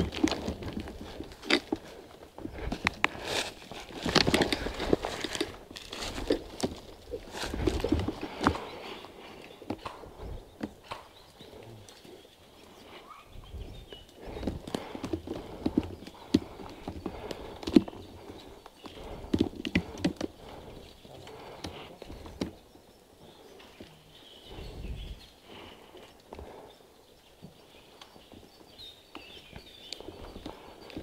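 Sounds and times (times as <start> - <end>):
footsteps through undergrowth: 0.0 - 10.2.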